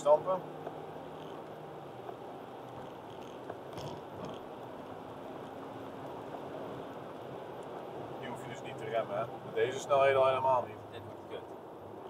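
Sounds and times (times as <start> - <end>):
car engine drone: 0.0 - 12.0
faint ticks: 0.6 - 4.5.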